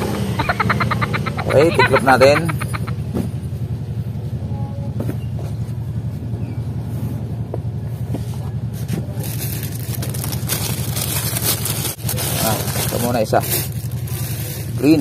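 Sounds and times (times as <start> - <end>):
low motor rumble: 0.0 - 15.0
cloth and paper rustling: 9.1 - 15.0.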